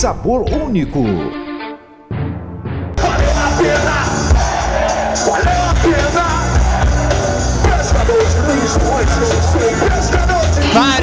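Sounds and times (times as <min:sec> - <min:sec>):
crowd shouting: 0:03.0 - 0:11.0
live rock music with singer: 0:03.0 - 0:11.0.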